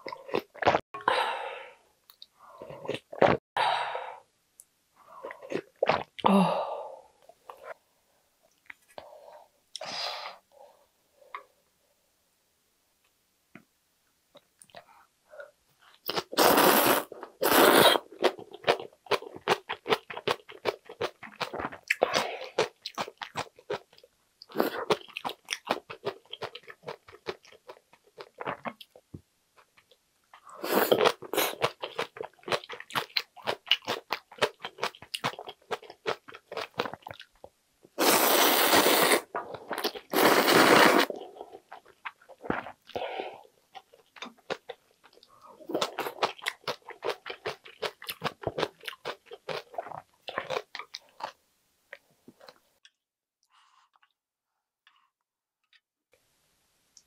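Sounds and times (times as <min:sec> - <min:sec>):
loud noodle slurps: 0:16.1 - 0:18.1, 0:38.0 - 0:41.2
wet chewing with crunchy clicks: 0:31.0 - 0:37.6, 0:43.7 - 0:52.9.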